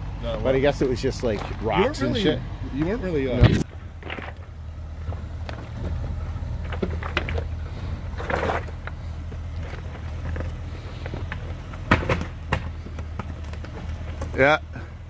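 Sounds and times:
low engine rumble: 0.0 - 15.0
stones crunching under tyres: 2.8 - 14.6.

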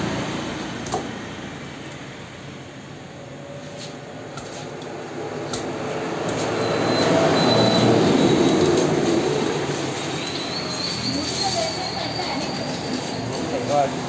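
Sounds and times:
passing vehicle rumble: 4.9 - 14.0.

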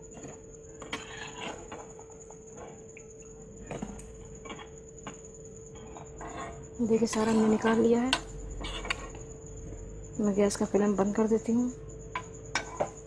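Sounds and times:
slotted spoon scraping a pan: 0.2 - 2.0, 5.8 - 9.2.

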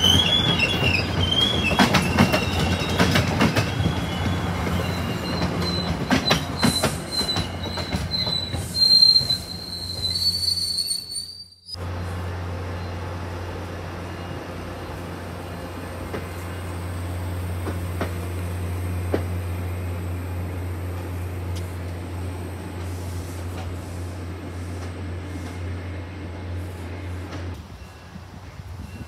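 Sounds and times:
train rolling past: 0.0 - 29.0
train wheels clicking over rail: 0.1 - 4.4.

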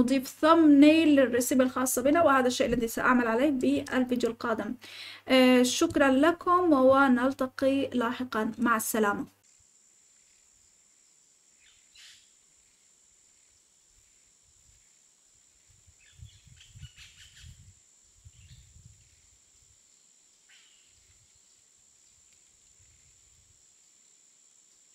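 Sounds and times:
high-pitched hiss: 9.4 - 24.9
bird chirps: 11.6 - 12.3, 16.0 - 17.7, 20.5 - 21.6.

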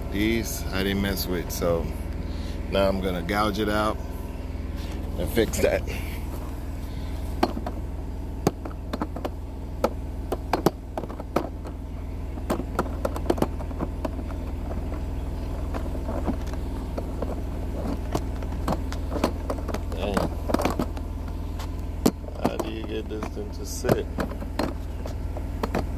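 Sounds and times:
engine idling: 0.0 - 25.9
sharp clicks and knocks: 7.4 - 7.8, 8.4 - 25.9.

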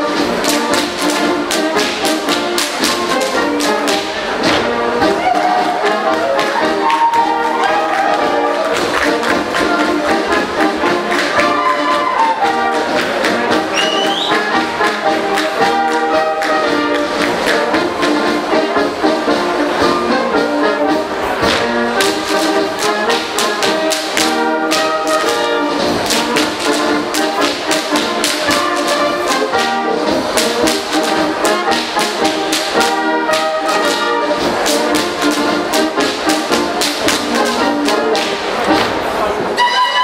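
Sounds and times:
brass band playing: 0.0 - 40.0
dancers slapping and stamping: 0.1 - 18.2, 21.4 - 39.0.

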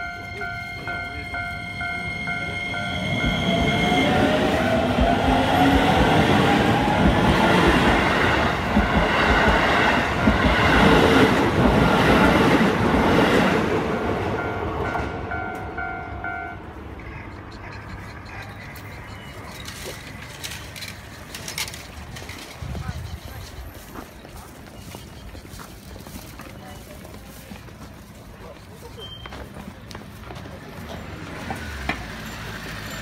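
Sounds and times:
crossing warning bell ringing: 0.0 - 11.9, 13.4 - 16.9, 30.8 - 33.0
electric train whine: 0.0 - 17.0
train wheels clattering on rails: 2.9 - 16.0, 18.3 - 33.0.

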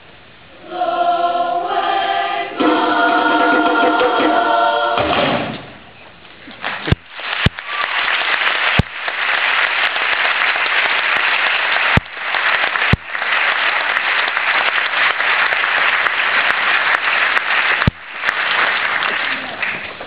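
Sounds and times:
audience clapping: 6.5 - 20.0.

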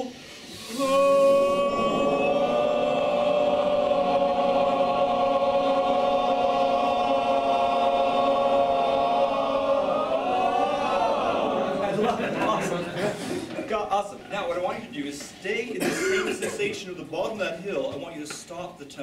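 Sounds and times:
men's chorus singing long tone: 0.0 - 12.2.

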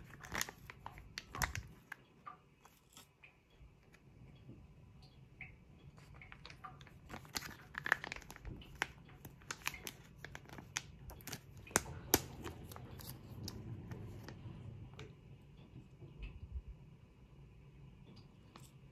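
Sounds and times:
plastic sachet crinkling and tearing: 0.0 - 2.0, 6.1 - 14.4.

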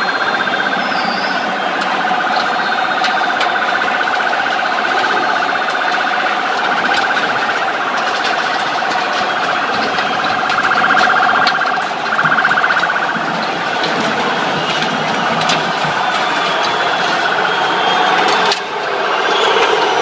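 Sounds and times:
electronic siren with fast flutter: 0.0 - 13.8.

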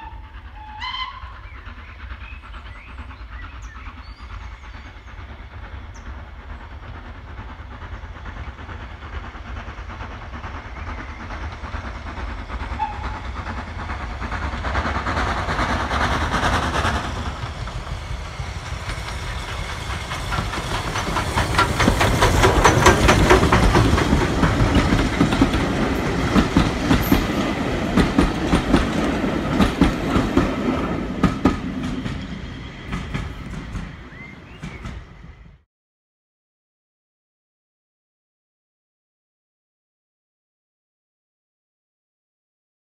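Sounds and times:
steam locomotive exhaust: 0.0 - 35.6
train wheels clickety-clack: 0.0 - 35.6.

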